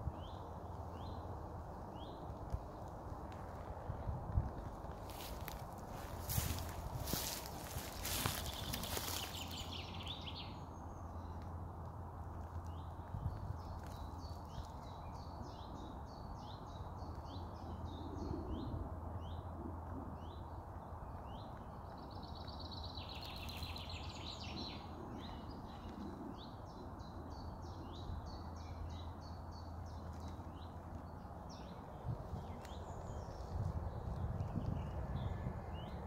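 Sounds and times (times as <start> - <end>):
songbirds chirping: 0.0 - 36.0.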